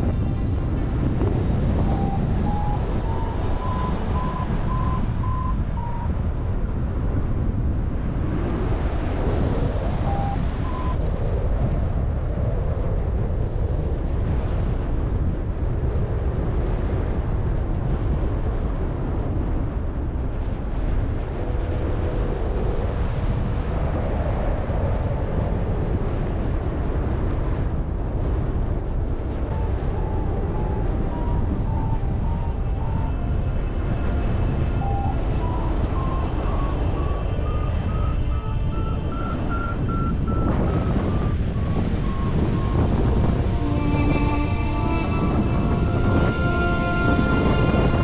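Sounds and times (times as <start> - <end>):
variometer beeping: 0.0 - 7.3, 9.9 - 11.0, 29.4 - 44.8
wind noise on microphone: 0.0 - 48.0.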